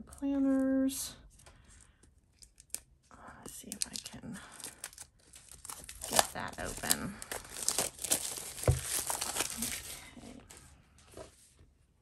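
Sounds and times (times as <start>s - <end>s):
wrapping crinkling and tearing: 2.3s - 3.0s, 3.6s - 10.6s.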